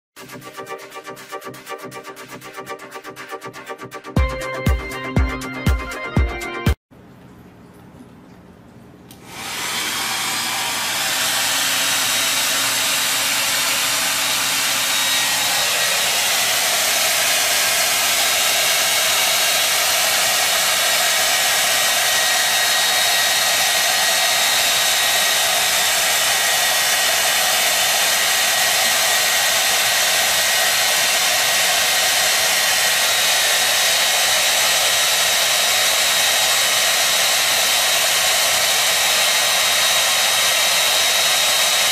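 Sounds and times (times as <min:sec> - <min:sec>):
hair dryer running: 0:09.1 - 0:41.9.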